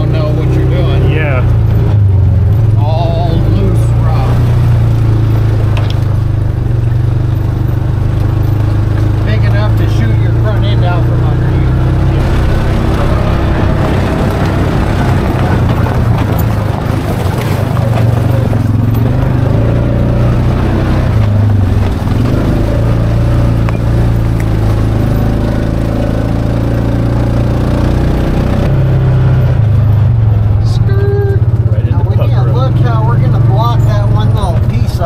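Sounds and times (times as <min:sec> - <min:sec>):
utility vehicle engine running: 0:00.0 - 0:35.0
stones clicking against vehicle: 0:05.6 - 0:07.5, 0:08.1 - 0:09.3, 0:12.2 - 0:19.4, 0:21.1 - 0:22.8, 0:23.5 - 0:24.9.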